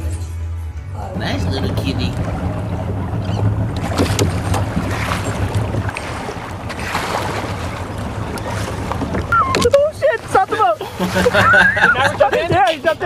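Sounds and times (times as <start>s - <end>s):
boat engine hum: 0.0s - 13.0s
water rushing past hull: 0.9s - 13.0s
wind buffeting microphone: 1.2s - 10.8s.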